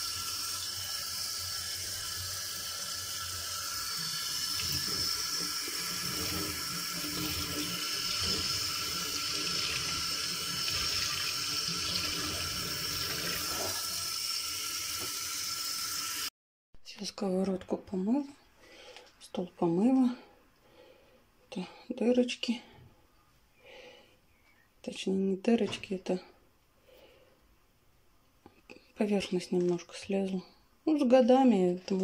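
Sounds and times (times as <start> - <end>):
sponge scrubbing frying pan: 4.6 - 11.0.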